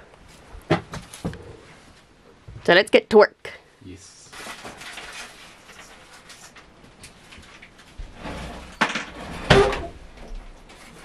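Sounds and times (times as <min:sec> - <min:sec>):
rustling and handling noises: 0:04.0 - 0:11.0.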